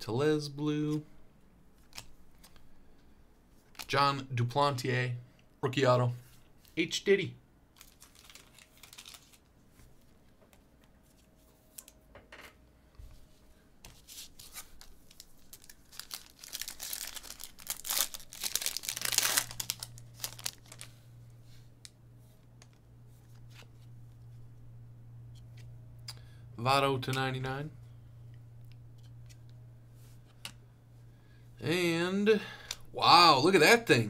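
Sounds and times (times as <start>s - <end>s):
plastic packaging crinkling and tearing: 7.7s - 9.5s, 14.3s - 20.9s.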